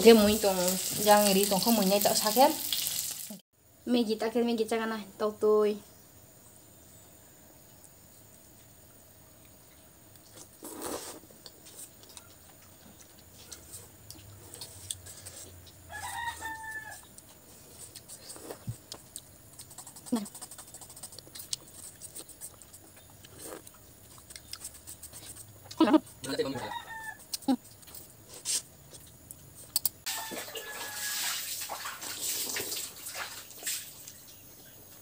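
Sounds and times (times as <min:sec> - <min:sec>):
slurping noodles: 0:10.4 - 0:11.3
rooster crowing: 0:15.8 - 0:17.2, 0:26.3 - 0:27.3, 0:30.1 - 0:31.6.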